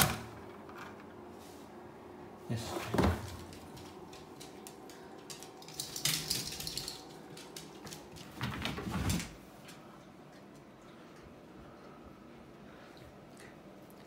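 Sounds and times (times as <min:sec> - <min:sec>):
dog claws clicking on floor: 0:03.2 - 0:09.3.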